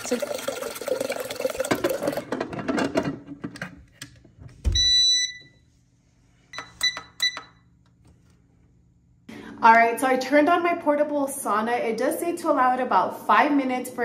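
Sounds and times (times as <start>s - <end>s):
water pouring into boiler: 0.0s - 2.4s.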